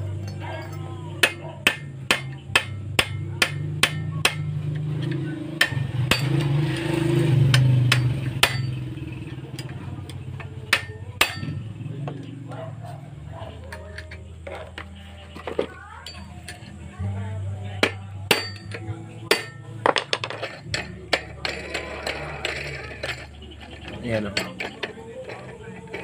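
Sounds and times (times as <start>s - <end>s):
low engine drone: 0.0s - 15.3s
hammer tapping on metal: 1.2s - 6.9s, 7.5s - 8.8s, 9.6s - 12.3s, 17.8s - 23.3s.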